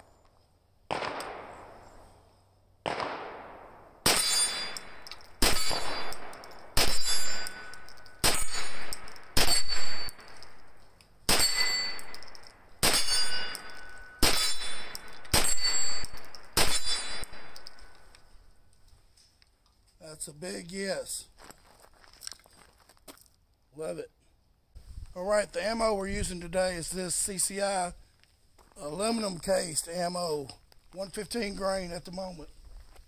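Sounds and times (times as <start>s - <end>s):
gunshots: 0.9s - 1.9s, 2.8s - 10.4s, 11.3s - 12.2s, 12.8s - 17.9s
steel target clanging: 4.1s - 10.6s, 11.3s - 18.0s.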